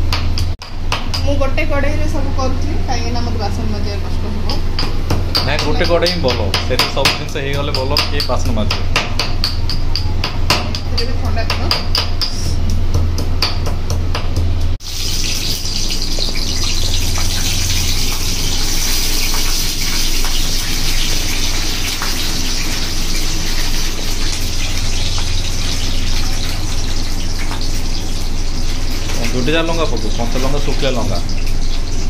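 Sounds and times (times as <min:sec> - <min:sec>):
pestle knocking in stone mortar: 0:04.8 - 0:14.5
chillies sizzling in hot oil: 0:14.8 - 0:32.0.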